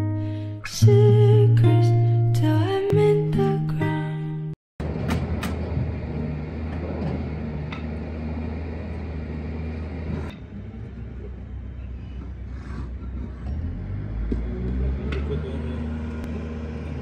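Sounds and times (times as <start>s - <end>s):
low mechanical hum: 4.8s - 17.0s.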